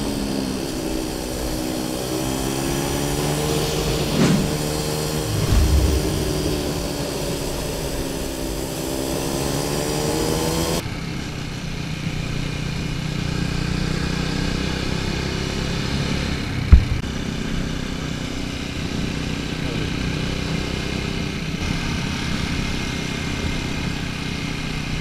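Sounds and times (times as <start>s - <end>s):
sharp thump: 3.9s - 8.4s, 16.7s - 17.1s.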